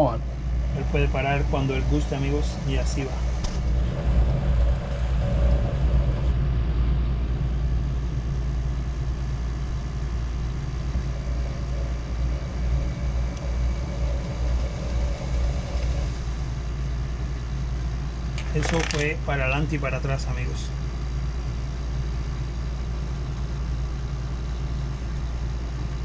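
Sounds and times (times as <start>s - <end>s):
electric motor humming: 0.0s - 6.4s, 9.5s - 17.3s.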